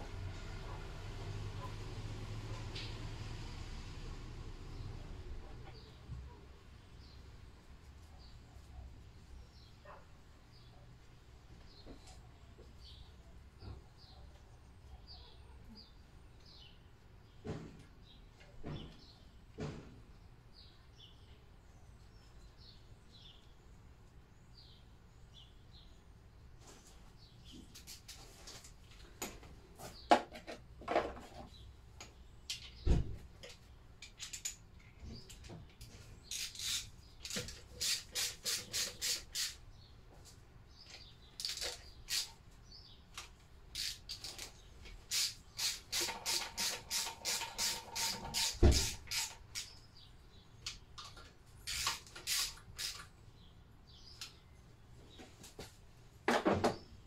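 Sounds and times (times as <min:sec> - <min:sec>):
faint birdsong: 0:04.1 - 0:57.0
quick ratchet-like clicks: 0:34.0 - 0:34.6, 0:36.3 - 0:39.6, 0:41.4 - 0:42.4, 0:43.7 - 0:49.8, 0:51.6 - 0:53.1.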